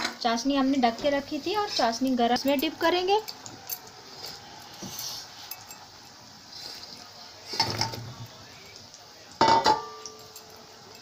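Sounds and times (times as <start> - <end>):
utensils clattering against pot: 7.5 - 8.2, 9.4 - 11.0.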